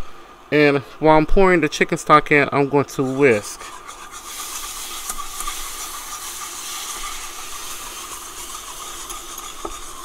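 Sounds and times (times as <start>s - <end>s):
whisking in a pan: 2.9s - 10.0s
roux sizzling in a pan: 3.1s - 10.0s.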